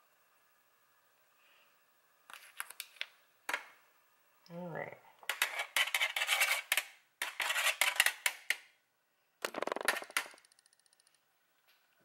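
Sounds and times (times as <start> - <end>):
metal spoon scraping metal pan: 5.3 - 8.6.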